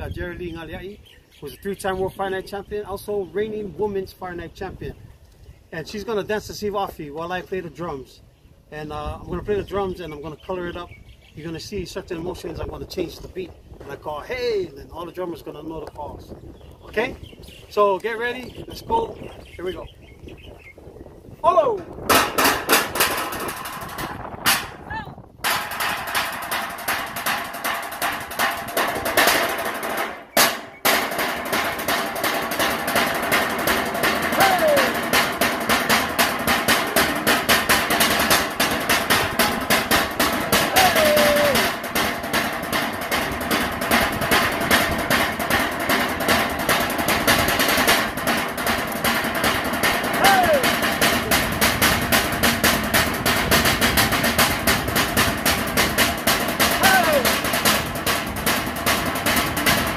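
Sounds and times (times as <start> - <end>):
drumming on wooden box drum: 22.0 - 24.8, 25.4 - 59.9
loud drum strike: 22.0 - 59.9.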